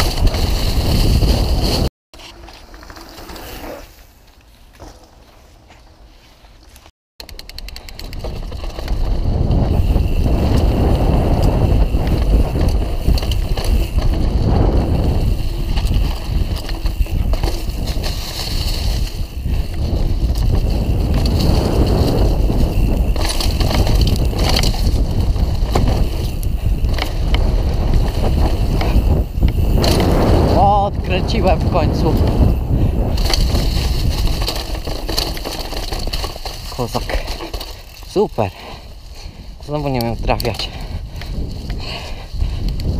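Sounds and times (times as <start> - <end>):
wind rushing over microphone: 0.0 - 1.9, 8.1 - 37.3, 38.4 - 42.9
bike knocks and rattles: 0.0 - 3.6, 4.6 - 5.9, 6.8 - 38.5
tyres rumbling on dirt: 8.0 - 42.0.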